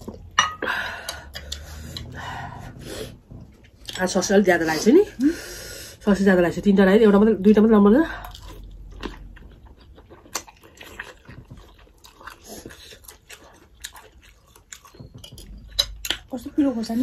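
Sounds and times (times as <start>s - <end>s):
chewing food: 8.1s - 17.0s.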